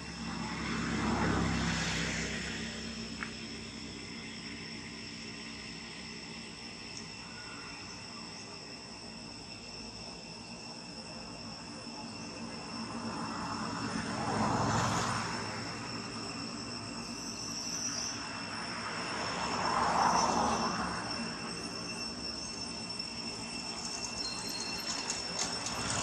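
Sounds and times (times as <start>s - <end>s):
high-pitched insect buzzing: 15.6s - 26.0s.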